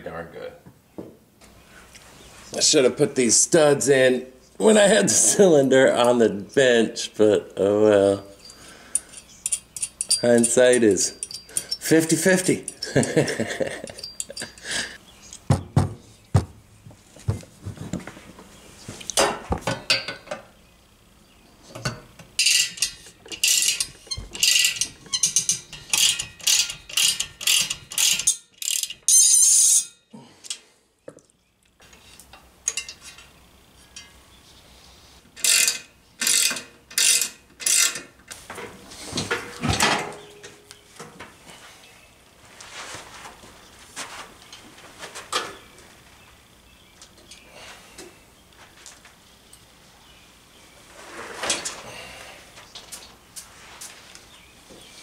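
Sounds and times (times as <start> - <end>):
metal clinks and knocks: 8.4 - 14.7, 21.8 - 30.1
socket ratchet clicking: 22.4 - 29.4.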